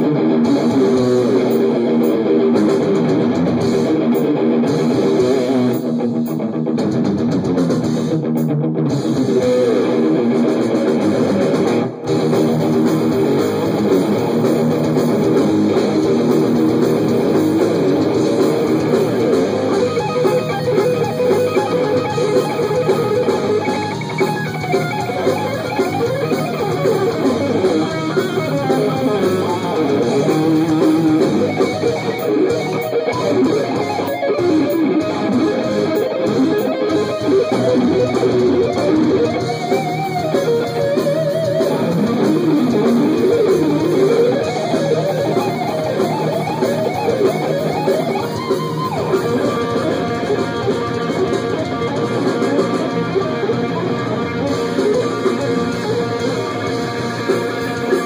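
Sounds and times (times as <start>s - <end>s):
fast electric guitar playing: 0.0s - 58.0s.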